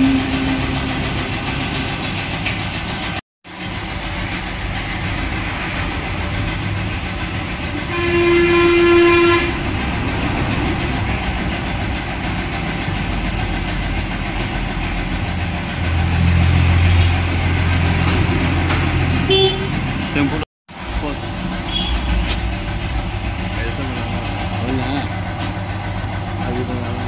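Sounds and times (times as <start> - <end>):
vehicle horn: 0.0 - 1.1, 7.7 - 10.1, 19.2 - 19.9, 21.6 - 22.3
traffic noise: 0.0 - 27.0.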